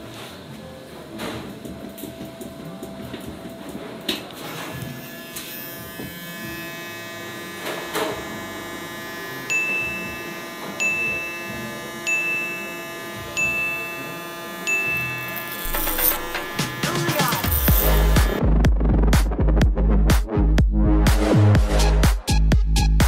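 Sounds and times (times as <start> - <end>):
ringing chime-like music: 9.5 - 18.4.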